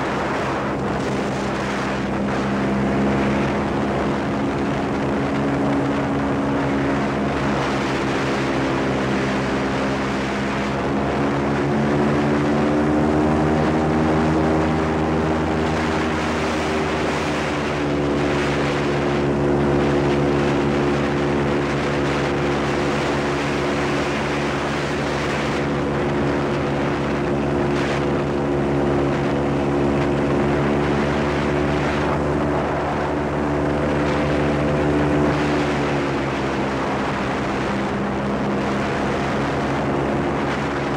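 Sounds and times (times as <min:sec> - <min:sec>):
airboat engine and propeller drone: 0:00.0 - 0:40.9.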